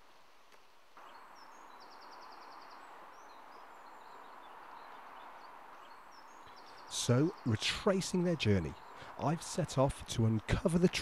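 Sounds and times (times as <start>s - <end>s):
river water flowing: 0.9s - 11.0s
small birds chirping: 0.9s - 11.0s.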